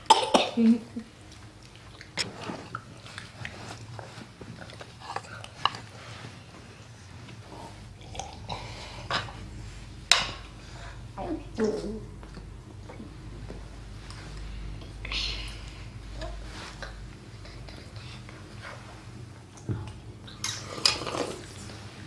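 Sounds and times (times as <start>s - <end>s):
chewing: 1.0s - 6.4s.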